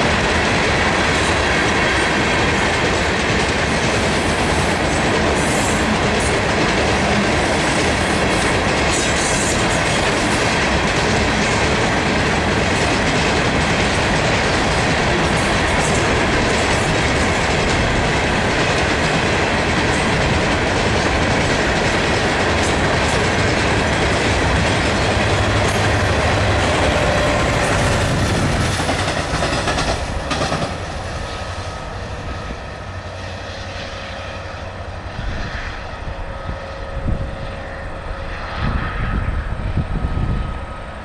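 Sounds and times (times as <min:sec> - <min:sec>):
wind gusts on microphone: 0:00.0 - 0:31.4, 0:34.7 - 0:41.0
train wheels clattering on rails: 0:00.0 - 0:32.7.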